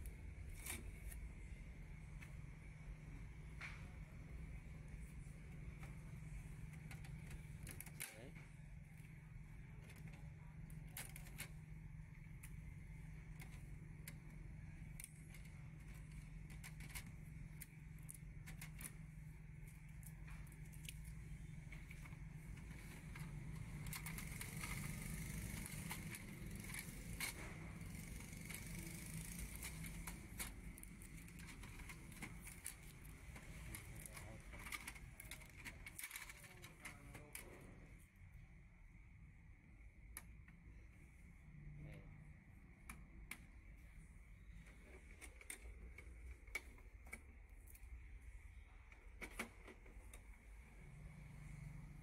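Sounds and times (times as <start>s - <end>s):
low steady hum: 0.0s - 52.0s
plastic clicks and crackles: 5.7s - 37.8s.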